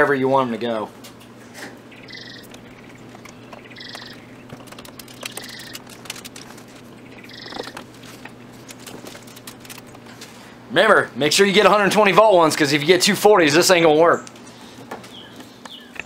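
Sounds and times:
bird calling: 1.6s - 10.0s.

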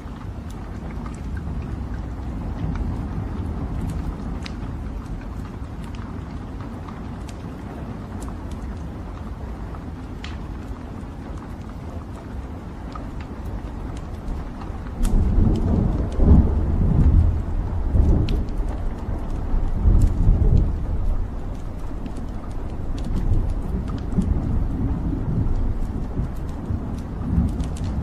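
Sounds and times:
logs crackling and popping: 0.0s - 28.0s
roar of flames: 0.0s - 28.0s.

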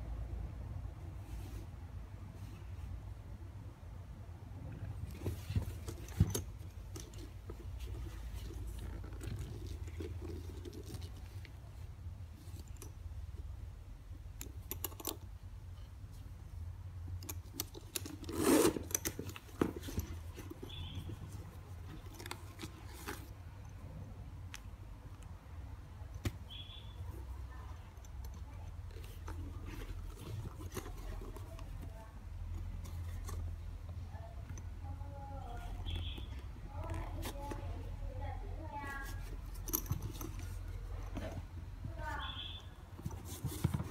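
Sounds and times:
low steady hum: 0.0s - 43.9s
soft rustling: 1.1s - 3.2s, 4.7s - 13.6s, 14.4s - 43.9s
small metallic zipper clicks: 17.2s - 21.2s.

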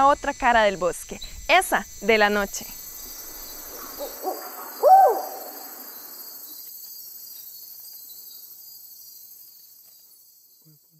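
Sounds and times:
night insects chorus: 0.0s - 10.9s
owl hooting: 3.2s - 6.6s.

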